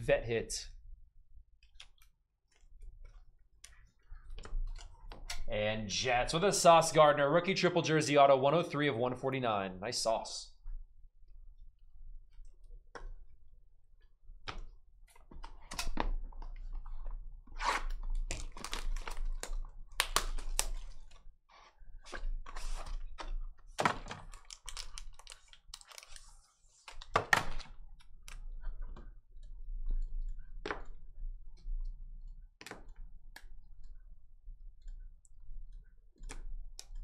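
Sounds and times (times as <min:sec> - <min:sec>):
cardboard and foil crinkling: 0:24.3 - 0:26.4.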